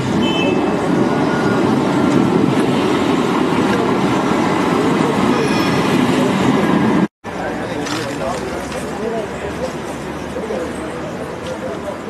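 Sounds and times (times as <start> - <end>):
train rumbling on rails: 0.0 - 7.8
faint high rail squeals: 1.1 - 2.2, 5.3 - 6.0.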